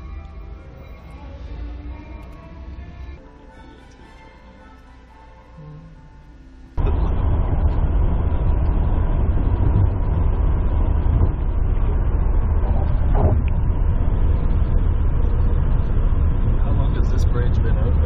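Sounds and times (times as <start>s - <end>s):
car road noise at highway speed: 6.8s - 18.0s.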